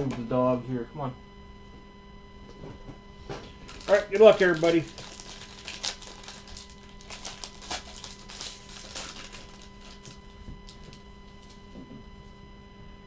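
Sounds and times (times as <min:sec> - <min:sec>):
faint electrical hum: 0:00.0 - 0:13.0
foil wrapper crinkling and tearing: 0:03.4 - 0:11.6.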